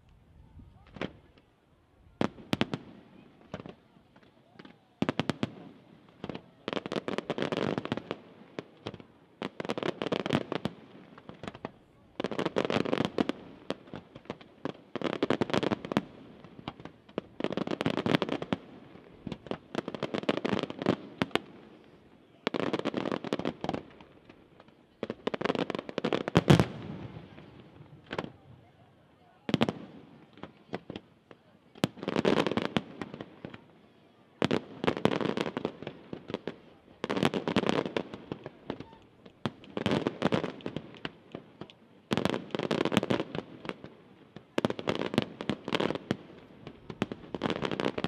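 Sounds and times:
fireworks cracking and popping: 0.8 - 1.5, 2.2 - 33.8, 34.4 - 48.0.

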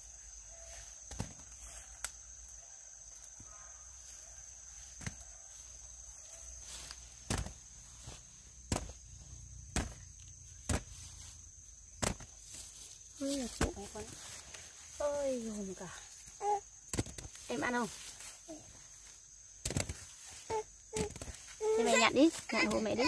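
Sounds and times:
high insect buzz: 0.0 - 23.0
fruit thudding into basket: 7.2 - 7.6, 8.7 - 9.0, 9.7 - 11.0, 12.0 - 12.4.

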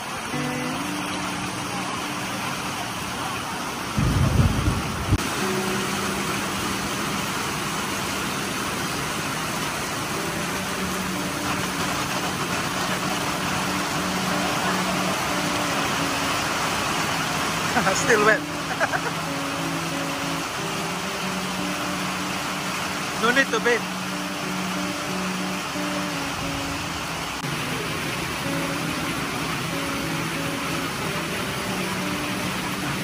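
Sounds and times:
heavy rain on paving and roof: 0.0 - 33.0
vehicle engine idling: 0.1 - 33.0
loud low rumble: 4.0 - 5.2.

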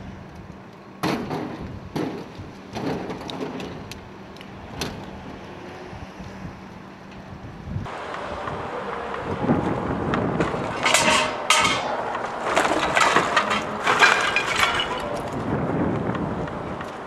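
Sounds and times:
objects rustling and clattering: 10.4 - 15.5.

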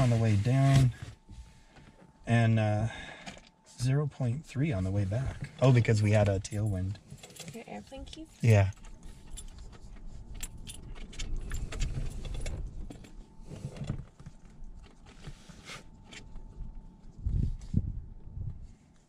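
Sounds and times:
keys jangling: 8.8 - 13.2.

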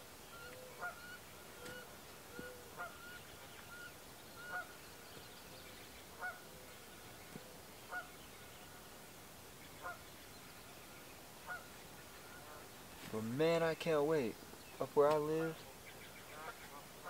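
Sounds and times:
faint geese honking: 0.0 - 17.0.

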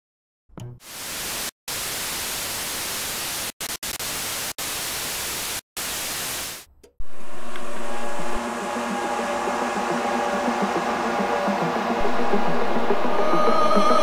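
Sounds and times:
television static hiss: 0.9 - 6.6.

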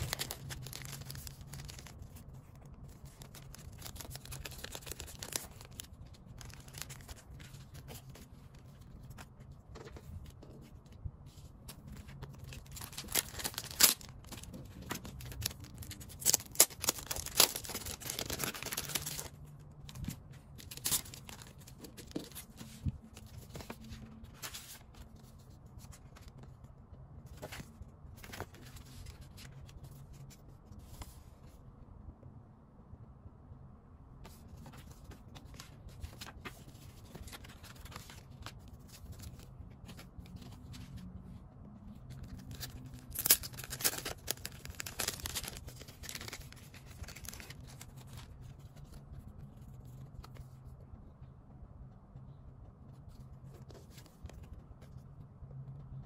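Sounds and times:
plastic packaging crinkling and tearing: 0.0 - 9.2, 11.7 - 24.9, 42.1 - 48.9
paper and card rustling: 0.0 - 31.6, 34.2 - 41.1, 41.9 - 50.8, 52.9 - 55.1.

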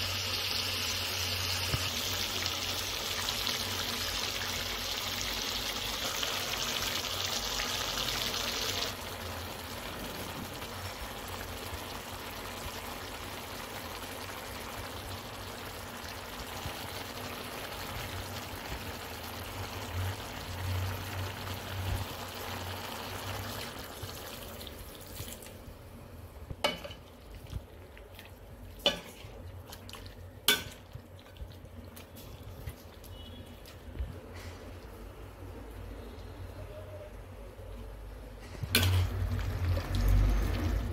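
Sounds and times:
chicken sizzling in hot oil: 0.0 - 25.9, 38.6 - 40.9.

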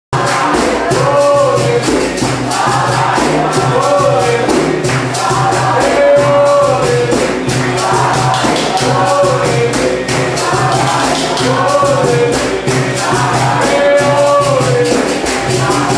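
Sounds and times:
percussion beat: 0.1 - 15.9
group singing: 0.2 - 15.9
hand clapping: 0.2 - 15.9.

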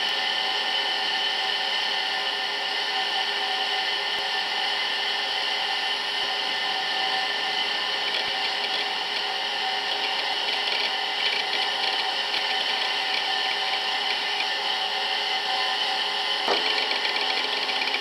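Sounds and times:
computer fan and hard drive whir: 0.0 - 18.0.

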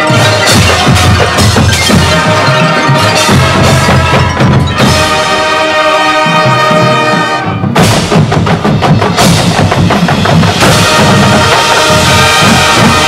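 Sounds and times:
brass chords: 0.0 - 13.0
marching drums rapid strikes: 0.0 - 13.0.

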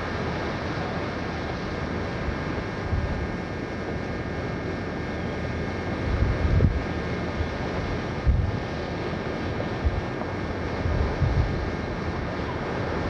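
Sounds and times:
boat engine droning: 0.0 - 13.0
wind buffeting microphone: 5.9 - 13.0.

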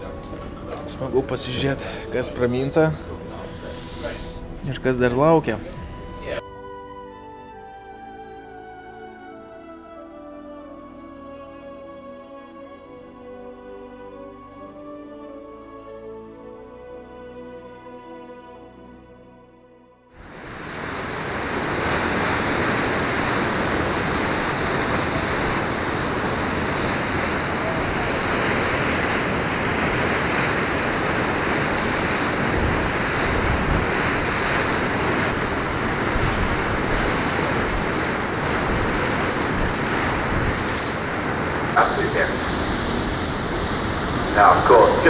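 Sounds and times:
rush of wind and water: 0.0 - 6.4, 20.2 - 45.0
wind buffeting microphone: 20.3 - 44.4.

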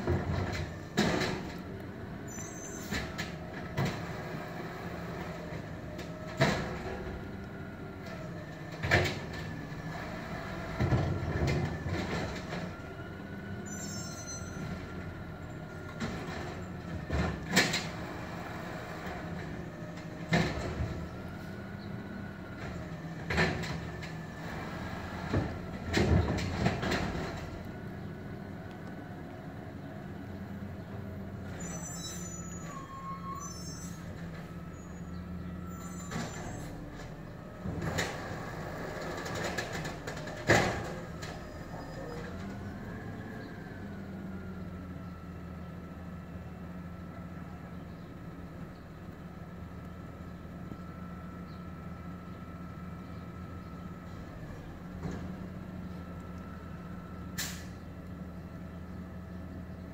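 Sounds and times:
bangs and clanks of trash carts: 0.0 - 1.8, 2.7 - 7.3, 15.8 - 22.0, 22.7 - 27.6, 35.7 - 42.8
diesel engine running: 0.0 - 59.9.

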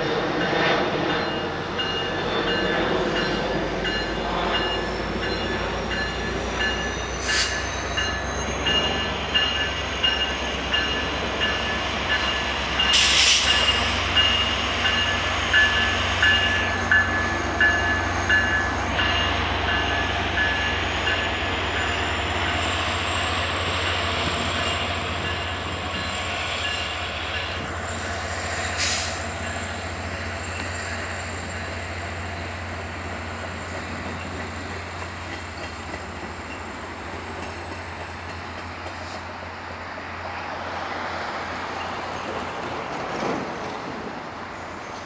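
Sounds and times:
train wheels rumbling on rails: 0.0 - 45.0
high wheel squeal: 4.9 - 11.2.

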